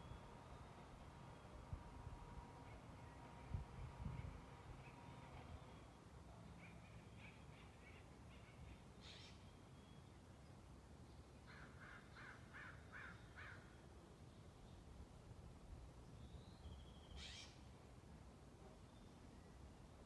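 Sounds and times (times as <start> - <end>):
low background noise: 0.0 - 20.0
distant bird calling: 6.6 - 9.6, 16.9 - 17.7
harsh caw-like calls: 11.5 - 13.7.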